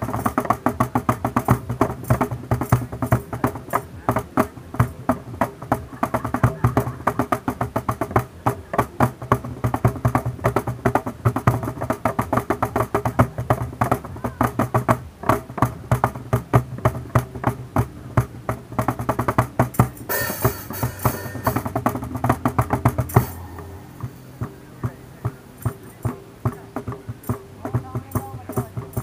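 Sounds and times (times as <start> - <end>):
hand drum fast rhythm: 0.0 - 29.0
high hiss: 18.6 - 29.0
strummed acoustic guitar: 19.7 - 29.0.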